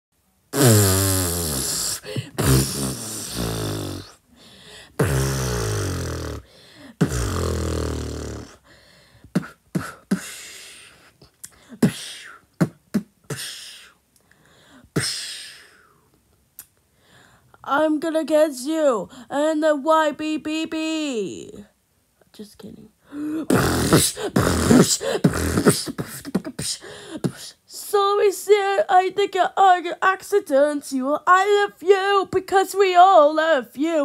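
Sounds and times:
beatboxing voice: 0:00.6 - 0:04.2, 0:05.0 - 0:06.4, 0:07.0 - 0:08.6, 0:09.3 - 0:10.4, 0:11.8 - 0:13.9, 0:23.5 - 0:27.6.

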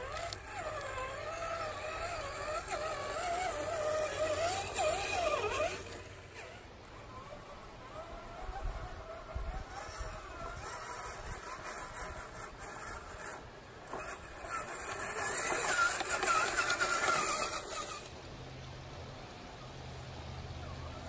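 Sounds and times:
toy truck electric motor whining: 0:00.0 - 0:18.2, 0:19.3 - 0:21.0.

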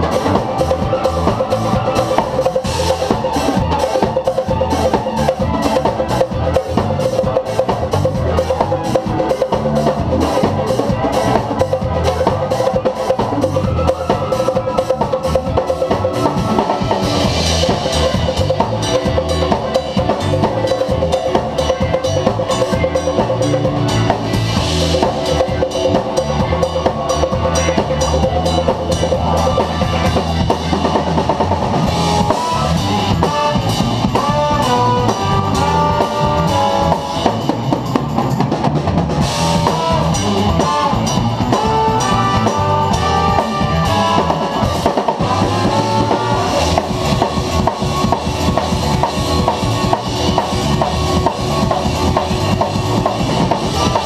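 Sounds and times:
funk jazz band groove: 0:00.0 - 0:54.0
trumpet and trombone melody: 0:31.9 - 0:37.6, 0:39.2 - 0:46.8.

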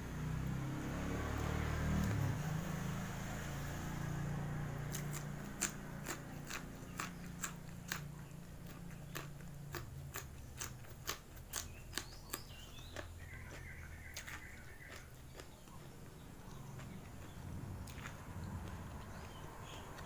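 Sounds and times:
chewing crunchy vegetables: 0:01.3 - 0:02.6, 0:03.4 - 0:20.0.

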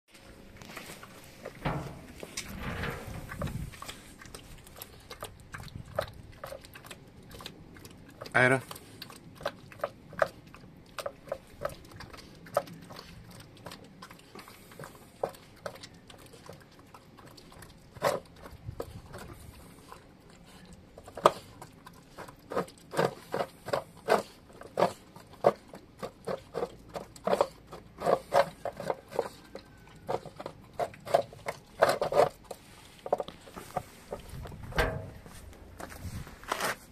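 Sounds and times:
puppy chomping and crunching food: 0:00.1 - 0:36.0.

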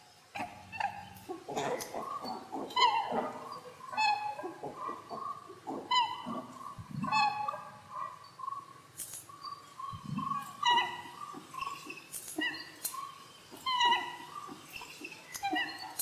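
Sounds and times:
faint wavering chirping: 0:00.0 - 0:16.0
squeaky animal calls: 0:00.4 - 0:16.0.

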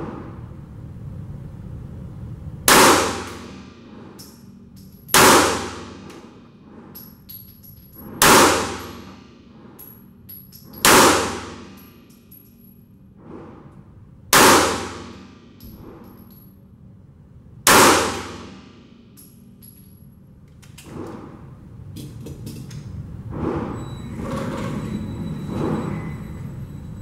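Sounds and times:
pistol shots with echo: 0:02.7 - 0:03.8, 0:05.1 - 0:06.1, 0:08.2 - 0:09.2, 0:10.8 - 0:11.8, 0:14.3 - 0:15.3, 0:17.7 - 0:18.8.

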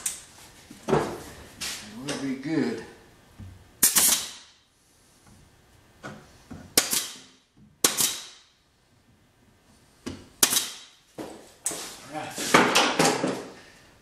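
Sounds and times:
pin nailer firing: 0:03.8 - 0:04.6, 0:06.7 - 0:08.5, 0:10.4 - 0:11.0.

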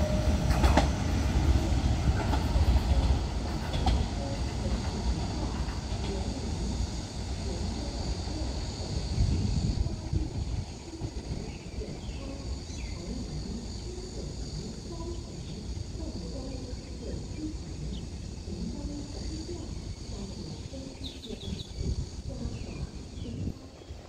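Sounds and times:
insects droning: 0:00.0 - 0:24.0
faint chirps: 0:10.3 - 0:24.0.

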